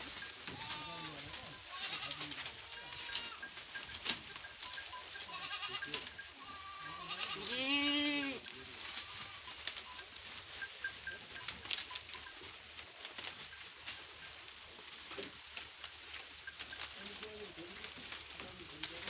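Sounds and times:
goats bleating: 0:00.0 - 0:03.6, 0:04.7 - 0:09.8
leaves rustling and clicking: 0:00.0 - 0:19.0.

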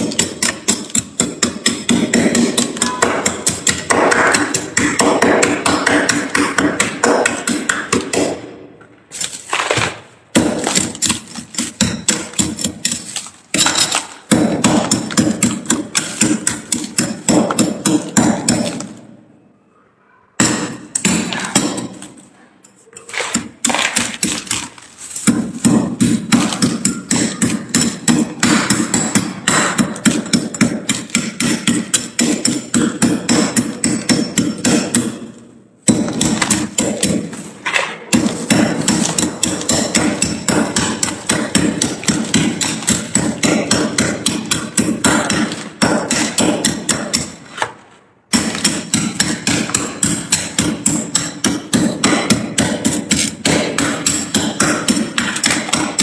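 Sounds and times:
metal spoon chopping frost: 0:00.0 - 0:08.4, 0:09.1 - 0:19.0, 0:22.9 - 0:47.7, 0:48.3 - 0:56.0.

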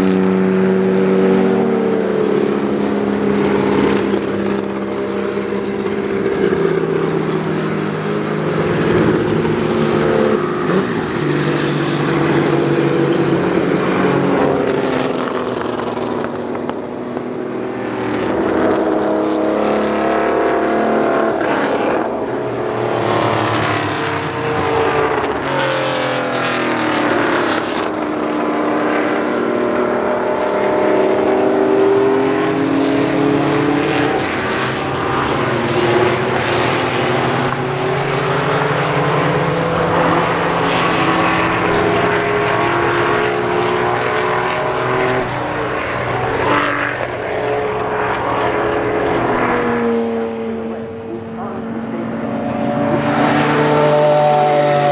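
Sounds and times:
race car engines accelerating: 0:00.0 - 0:54.9.

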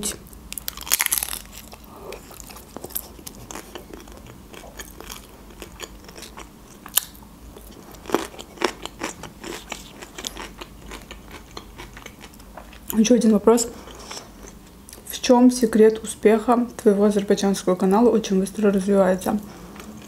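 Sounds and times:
chewing food: 0:00.6 - 0:13.0.

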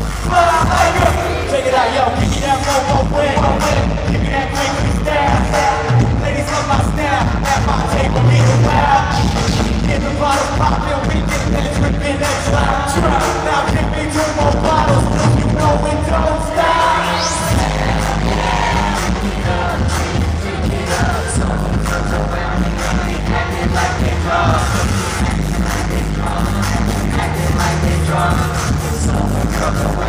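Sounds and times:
hip-hop dance music: 0:00.0 - 0:30.0
person singing into a microphone: 0:00.1 - 0:30.0
rising sweep: 0:16.3 - 0:19.4.

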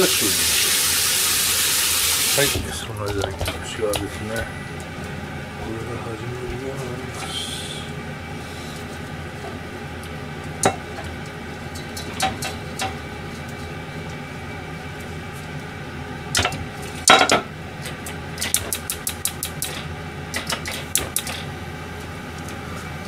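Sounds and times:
metal pans clanking on stove grates: 0:11.7 - 0:13.0.

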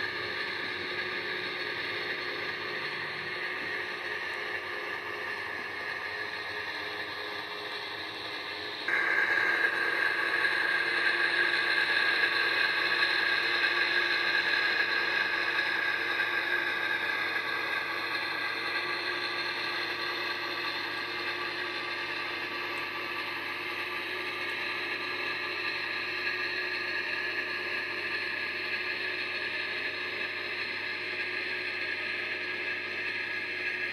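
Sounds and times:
model locomotive motor whirring: 0:00.0 - 0:33.9.

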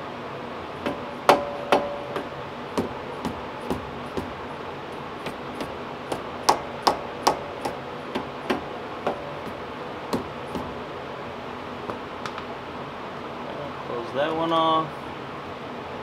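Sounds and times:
tool tapping brake caliper: 0:00.8 - 0:10.8.

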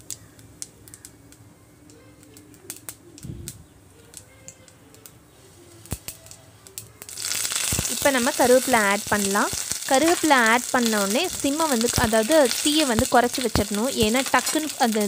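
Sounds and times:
mustard seeds popping in oil: 0:00.0 - 0:15.0
loud oil sizzle: 0:05.0 - 0:15.0.

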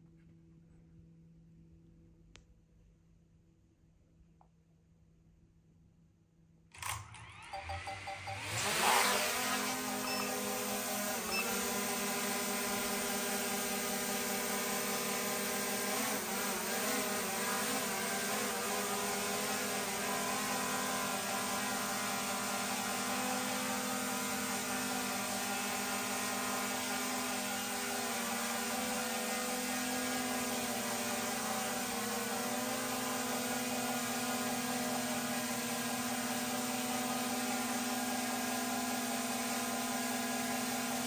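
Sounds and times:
drone propellers whirring: 0:08.3 - 0:20.6.

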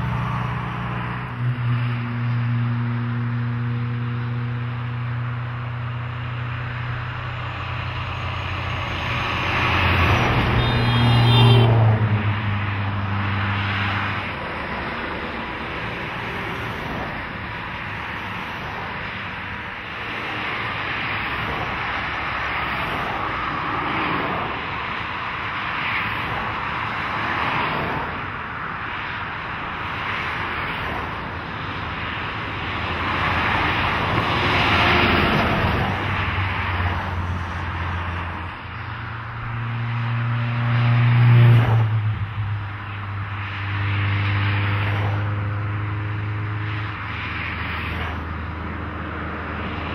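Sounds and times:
truck diesel engine droning: 0:00.0 - 0:17.0
tyre noise from passing cars: 0:00.0 - 0:49.9.

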